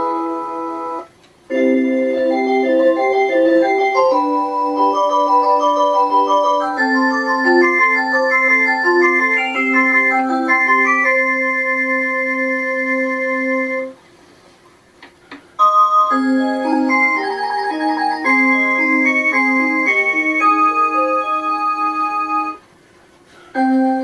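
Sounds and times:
electronic clock chime tune: 0:00.8 - 0:12.1, 0:15.6 - 0:22.6.

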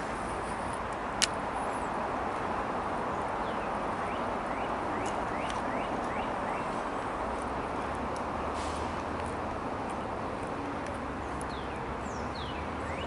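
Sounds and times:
steady outdoor hiss: 0:00.0 - 0:13.0
bird chirping: 0:11.5 - 0:13.0.

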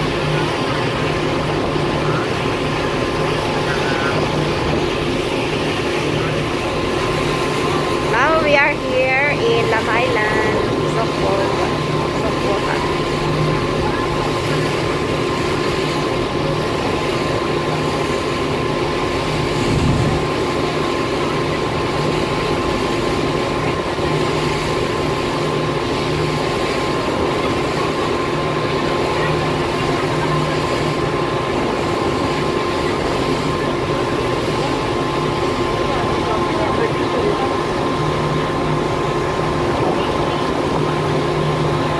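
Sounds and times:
boat engine droning: 0:00.0 - 0:41.9
wind and water rushing: 0:16.1 - 0:28.4.

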